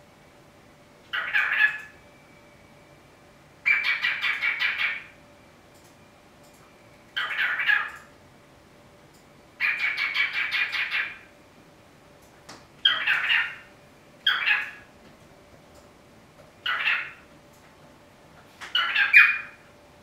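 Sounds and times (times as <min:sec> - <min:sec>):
cockatiel chattering: 0:01.1 - 0:02.0, 0:03.6 - 0:05.1, 0:07.2 - 0:08.0, 0:09.6 - 0:11.3, 0:12.8 - 0:14.9, 0:16.6 - 0:17.2, 0:18.7 - 0:19.6.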